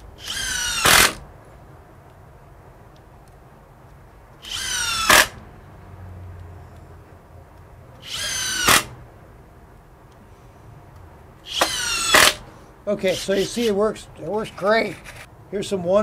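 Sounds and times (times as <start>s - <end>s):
impact driver driving screws into wood: 0.0s - 1.2s, 4.4s - 5.4s, 8.0s - 9.0s, 11.5s - 12.4s.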